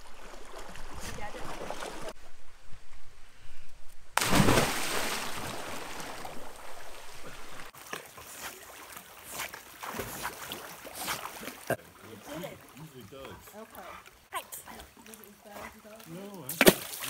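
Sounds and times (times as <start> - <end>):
small splashes and lapping water: 0.0 - 2.2, 4.2 - 17.0
water churning: 0.0 - 2.2, 4.2 - 17.0
big splash into water: 4.2 - 7.7.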